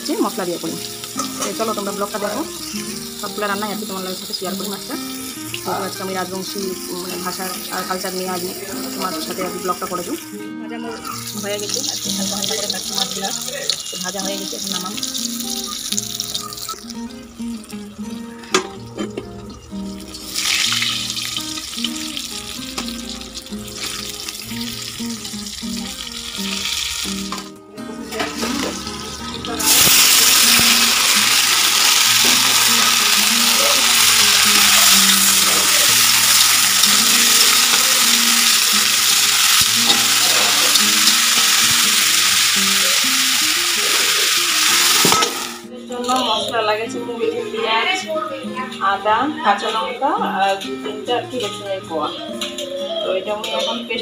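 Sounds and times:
fish frying quietly: 0.0s - 10.2s, 11.3s - 27.5s, 28.1s - 45.7s
potatoes sizzling in hot oil: 0.0s - 10.4s, 11.0s - 27.5s, 28.1s - 46.4s
background music low melody: 0.0s - 42.6s.

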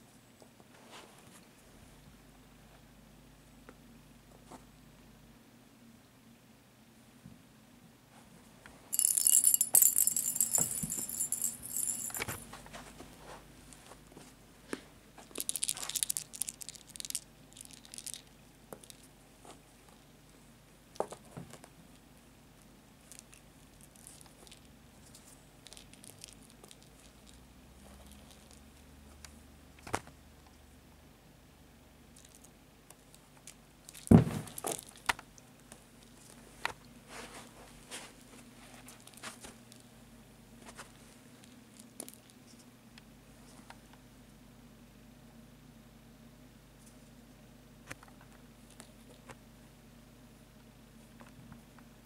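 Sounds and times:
cat toy bell jingling and rattling: 8.9s - 12.4s.

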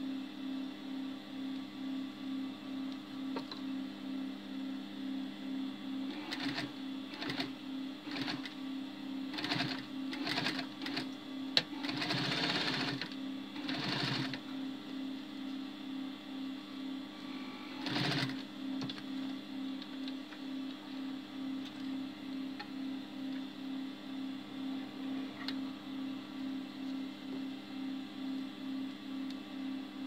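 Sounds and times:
sewing machine stitching: 6.1s - 8.5s, 9.3s - 14.4s, 17.7s - 18.4s.

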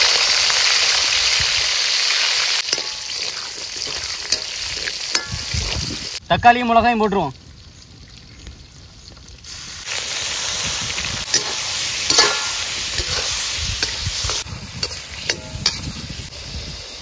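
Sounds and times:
vegetables sizzling in hot oil: 0.0s - 6.2s, 9.4s - 17.0s
ladle clicking and scraping: 2.7s - 6.0s, 11.3s - 15.9s.

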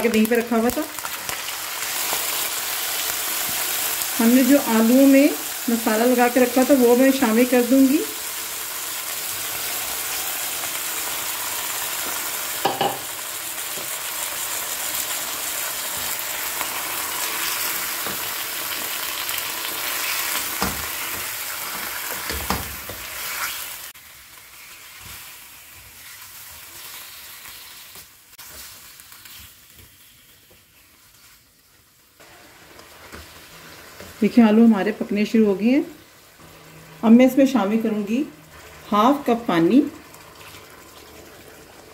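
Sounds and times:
potatoes sizzling in hot oil: 0.0s - 41.9s
utensils knocking against pan: 12.6s - 13.1s.

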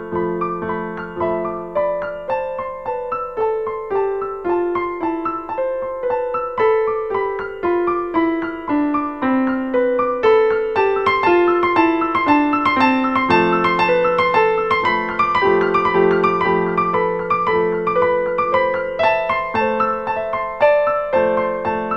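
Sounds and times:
piano music: 0.0s - 21.9s.

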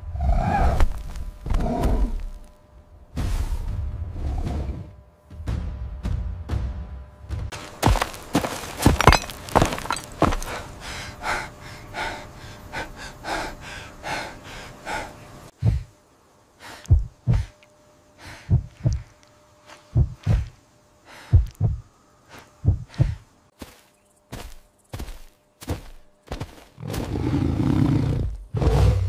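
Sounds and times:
man panting heavily: 10.4s - 16.0s, 16.6s - 17.6s, 18.2s - 19.0s, 21.1s - 21.8s, 22.6s - 23.3s
heartbeat thuds: 15.6s - 16.0s, 16.8s - 17.6s, 18.4s - 19.2s, 19.9s - 20.6s, 21.3s - 21.9s, 22.6s - 23.3s.

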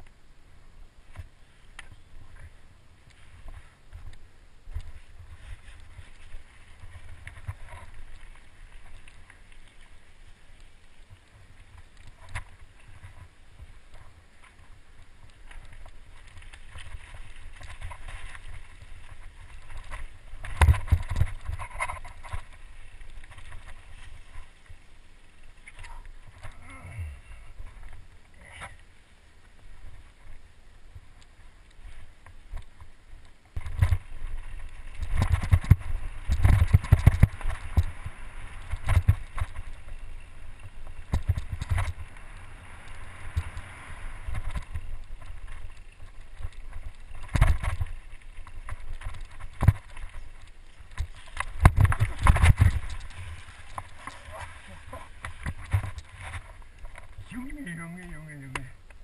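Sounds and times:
bike tyre noise: 1.1s - 57.4s
bike rattling: 4.7s - 26.6s, 31.9s - 57.5s
rushing wind: 33.5s - 57.3s.

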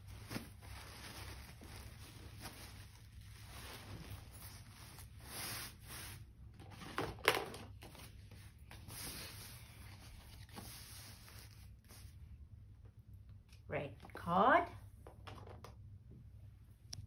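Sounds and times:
plastic sheet rustling: 0.0s - 7.0s, 7.7s - 12.2s.

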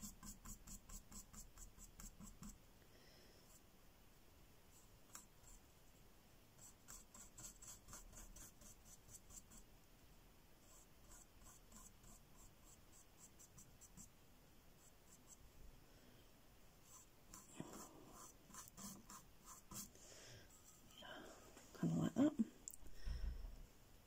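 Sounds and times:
paintbrush scratchy strokes: 6.6s - 9.7s, 10.6s - 14.1s, 14.8s - 15.4s, 16.8s - 21.0s.

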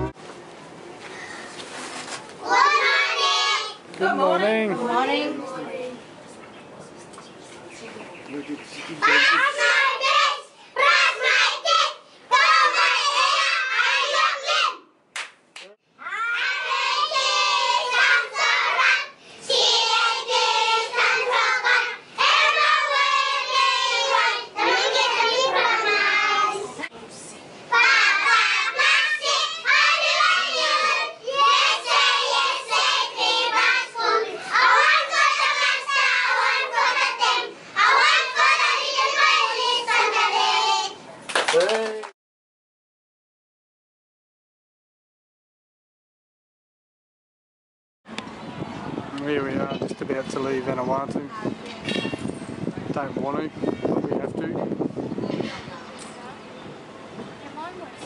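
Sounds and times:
young children singing in unison: 2.4s - 3.8s, 9.1s - 14.8s, 16.2s - 26.8s, 27.7s - 41.0s.

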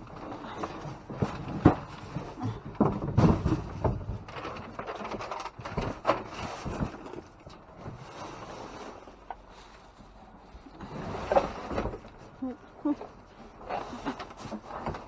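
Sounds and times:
cardboard and plastic bags rustling: 0.0s - 15.0s
knocks and thumps: 0.6s - 7.2s.

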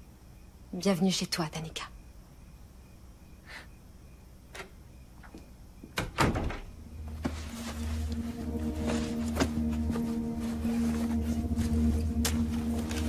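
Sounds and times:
door shutting: 4.5s - 7.3s
low held music tones: 6.5s - 13.0s.

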